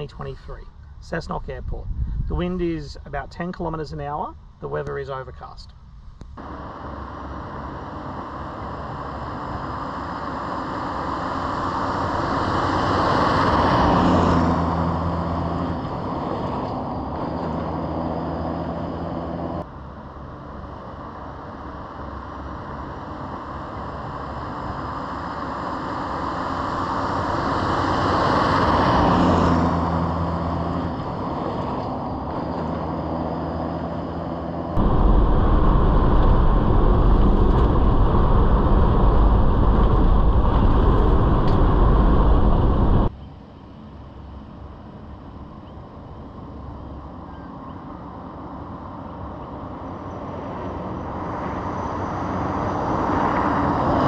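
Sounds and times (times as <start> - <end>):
engine and road noise inside car: 4.4 - 54.0
car driving past at speed: 6.4 - 19.6.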